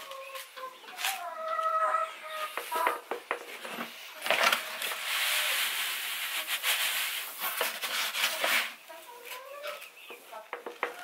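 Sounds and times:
chicken calling: 0.0 - 3.1
grain rustling and crunching: 3.8 - 9.9.

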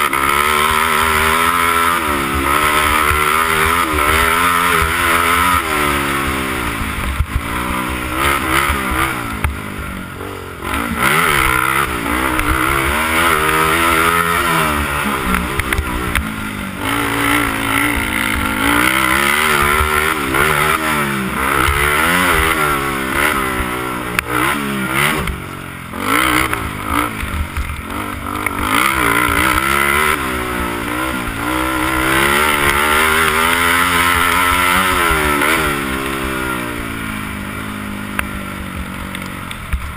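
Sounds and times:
quad engine revving: 0.0 - 39.9.

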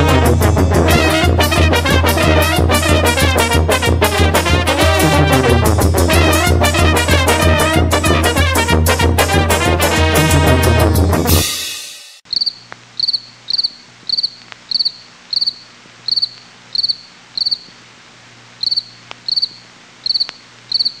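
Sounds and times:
upbeat brass music: 0.0 - 12.2
cricket chirping: 12.3 - 17.8, 18.6 - 21.0.

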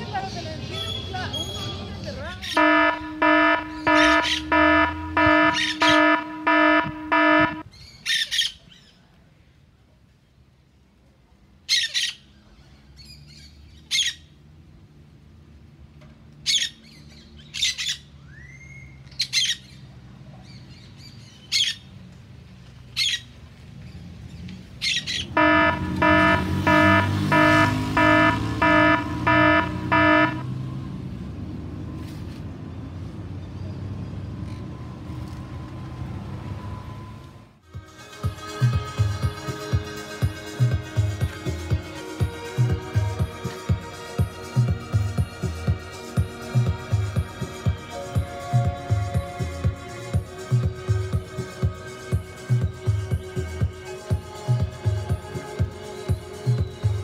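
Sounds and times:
low engine rumble: 0.0 - 7.6, 22.0 - 37.6
parrot squawks: 2.4 - 6.7
loud electronic beeping: 2.6 - 7.6, 25.4 - 30.5.

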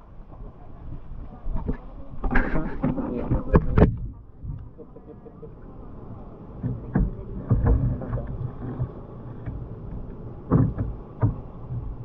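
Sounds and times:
water sloshing around kayak: 0.0 - 12.0
knocks and thuds: 10.5 - 11.9.

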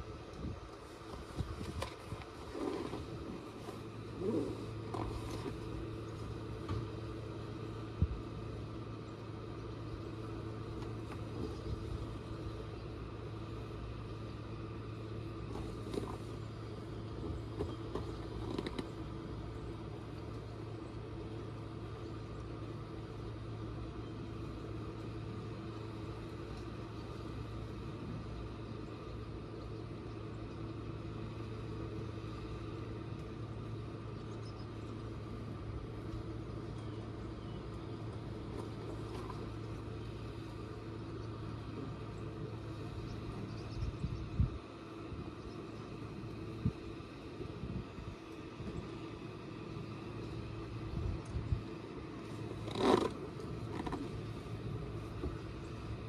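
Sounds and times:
boat motor humming: 0.0 - 56.0.

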